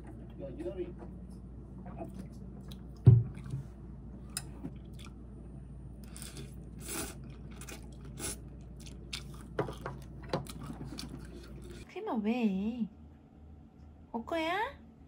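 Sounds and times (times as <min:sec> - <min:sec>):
person chewing noodles: 0:04.2 - 0:05.2, 0:05.9 - 0:11.9
person sipping broth: 0:06.0 - 0:09.5.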